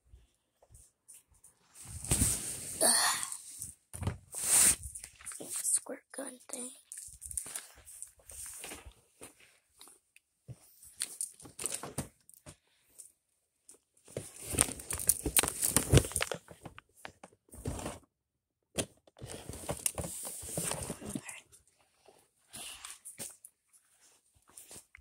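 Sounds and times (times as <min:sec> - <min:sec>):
handling noise rustling and clicks: 0:06.8 - 0:13.1, 0:13.7 - 0:17.9, 0:18.9 - 0:21.3.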